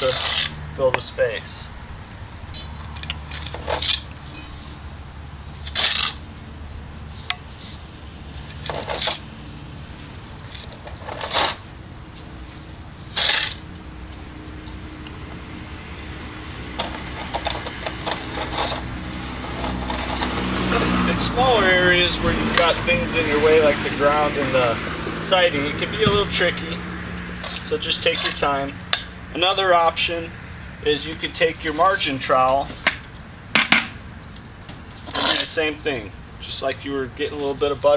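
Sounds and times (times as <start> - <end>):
steel tool scraping mortar: 0.0 - 0.6, 5.6 - 6.2, 8.6 - 9.3, 10.6 - 11.6, 13.1 - 13.7, 16.8 - 20.9, 27.4 - 28.5, 35.0 - 35.8
faint insect chirping: 0.1 - 22.0, 26.4 - 37.9.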